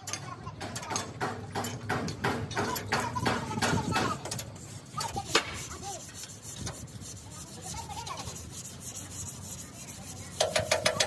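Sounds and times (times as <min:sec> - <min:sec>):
sandpaper rubbing on metal: 0:02.8 - 0:11.0.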